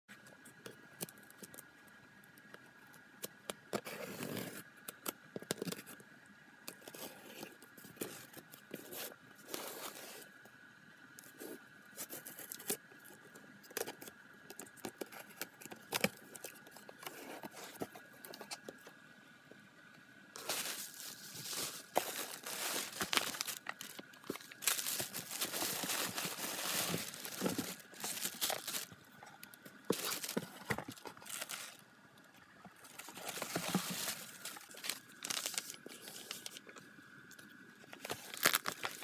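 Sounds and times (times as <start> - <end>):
cardboard rustling: 14.8 - 18.8, 20.4 - 29.0, 29.8 - 31.8, 32.8 - 36.6, 38.0 - 39.0
tape tearing: 20.4 - 29.0, 29.9 - 31.8, 38.0 - 39.0.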